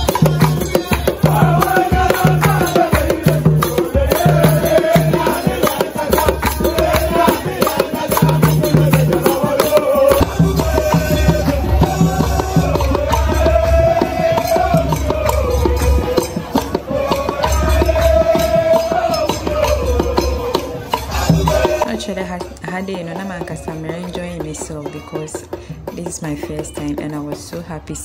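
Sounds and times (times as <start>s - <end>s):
group singing: 0.0s - 22.4s
beaten drum: 0.0s - 28.0s
hand clapping: 5.1s - 10.2s, 14.9s - 16.8s.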